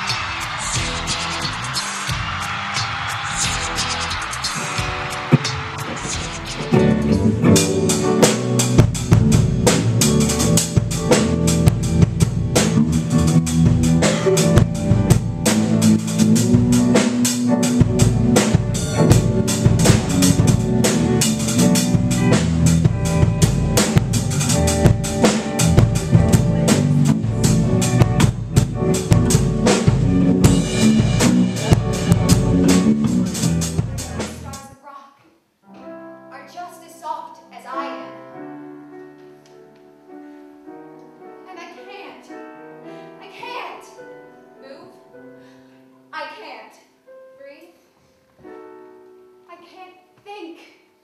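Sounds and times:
bass guitar notes: 0.0 - 2.2, 3.3 - 34.7
drum kit fast beat: 0.0 - 34.7.

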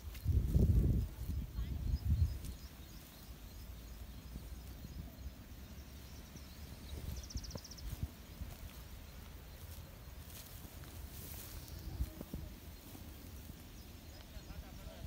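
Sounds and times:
wind rumble: 0.0 - 9.5.

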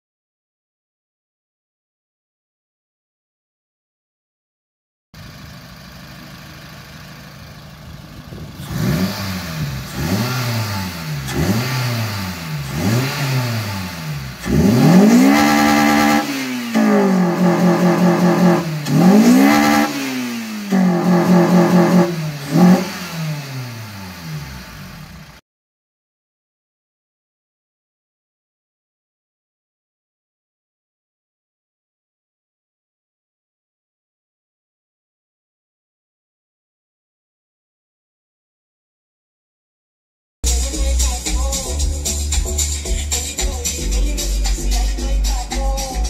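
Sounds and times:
car engine idling and revving: 5.2 - 25.4, 40.4 - 46.0.

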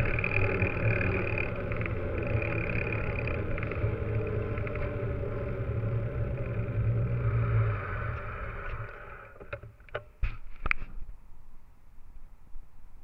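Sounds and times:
bike tyre rolling over paving: 0.0 - 9.8.

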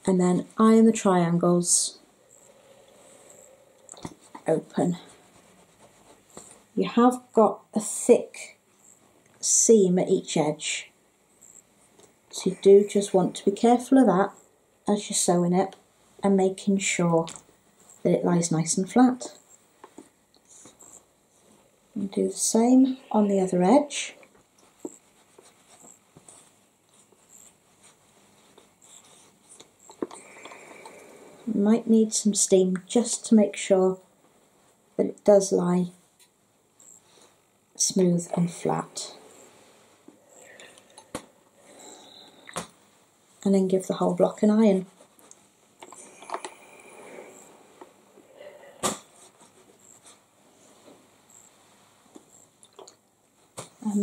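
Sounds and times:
fabric rustling: 4.1 - 6.8, 24.3 - 31.2.

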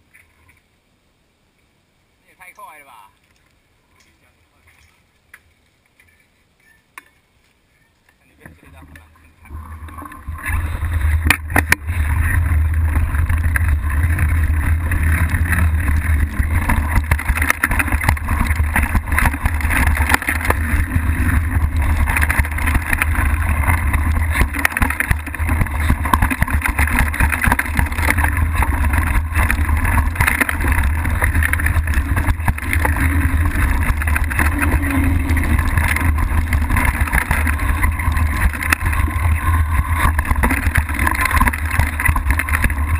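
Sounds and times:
bike tyre noise on dirt: 3.4 - 42.9
bike rattling over rocks: 8.2 - 42.9
wind rumble on microphone: 9.4 - 42.9.

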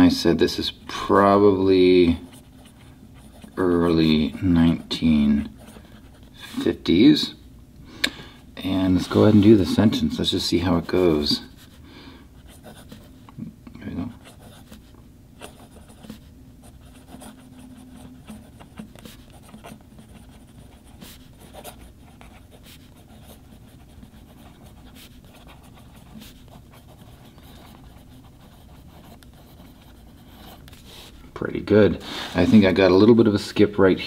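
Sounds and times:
pen nib scratching on paper: 15.4 - 30.8.

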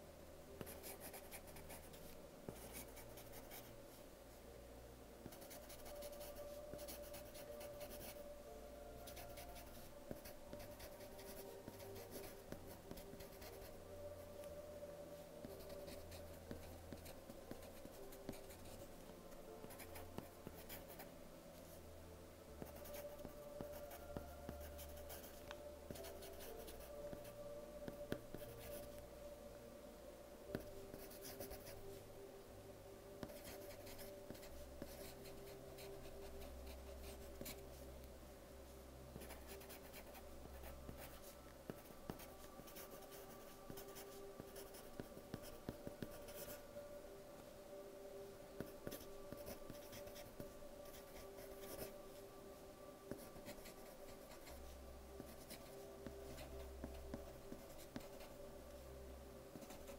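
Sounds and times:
faint background tones: 0.0 - 59.9
pencil scratching on paper: 33.3 - 35.9, 39.2 - 46.6, 48.8 - 50.3, 55.2 - 55.6.

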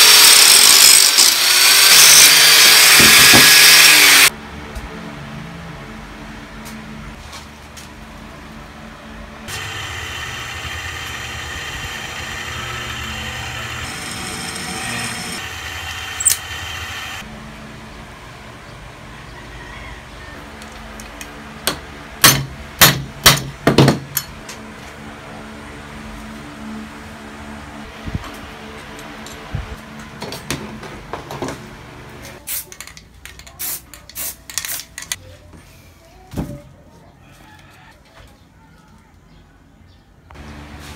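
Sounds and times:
drill bit drilling into steel: 0.0 - 4.3, 9.5 - 17.2
drill press whining: 9.5 - 17.2.

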